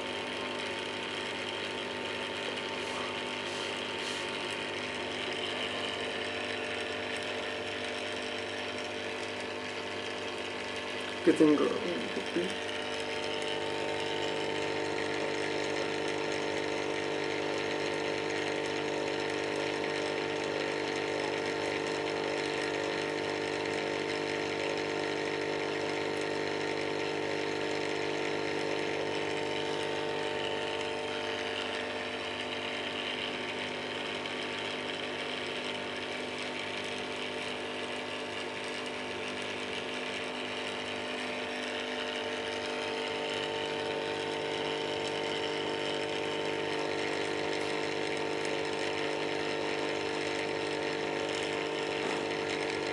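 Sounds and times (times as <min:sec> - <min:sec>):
aquarium air pump buzzing: 0:00.0 - 0:52.9.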